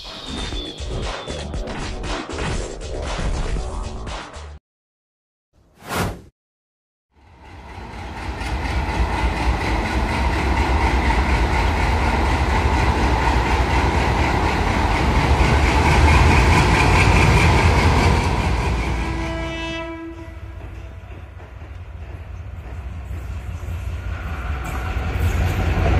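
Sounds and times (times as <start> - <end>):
diesel locomotive engine rumbling: 7.2 - 25.9.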